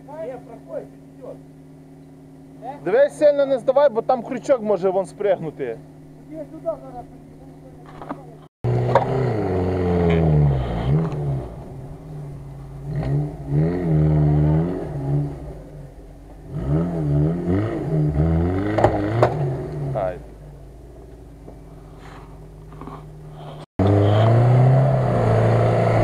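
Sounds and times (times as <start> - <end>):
engine revving hard under load: 8.6 - 15.8, 16.4 - 20.3, 23.8 - 26.0.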